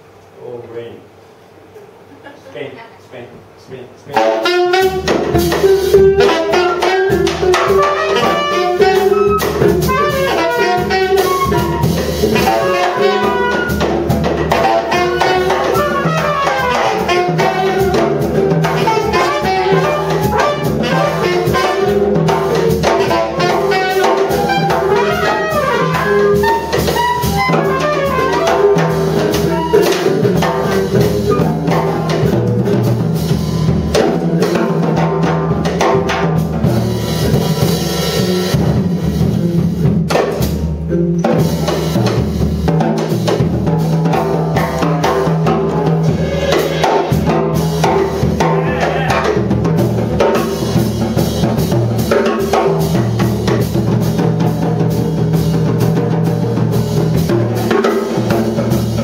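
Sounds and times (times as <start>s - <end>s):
saxophone: 4.1s - 34.6s
trumpet: 4.1s - 34.7s, 45.6s - 49.5s
drum kit and cymbals: 4.1s - 59.0s
flute: 5.6s - 13.9s, 14.6s - 21.7s, 23.8s - 28.6s, 31.2s - 31.8s, 33.2s - 34.2s.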